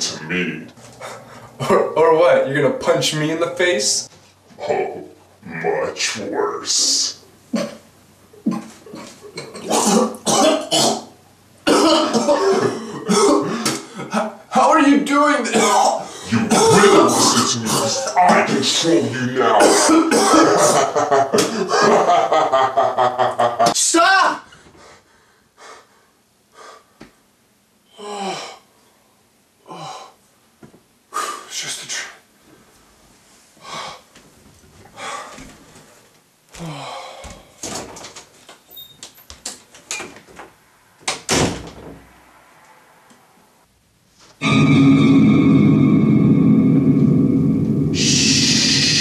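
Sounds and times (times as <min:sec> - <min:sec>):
man coughing: 0:08.5 - 0:14.3, 0:15.5 - 0:22.2
man breathing hard and gasping: 0:16.0 - 0:16.4, 0:24.6 - 0:27.0, 0:33.6 - 0:34.2, 0:34.9 - 0:35.6, 0:36.5 - 0:37.7.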